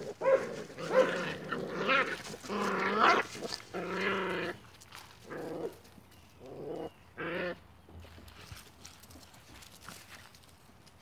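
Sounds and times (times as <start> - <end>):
puppies barking: 0.0 - 4.4
puppies growling: 0.0 - 4.6, 5.2 - 7.6.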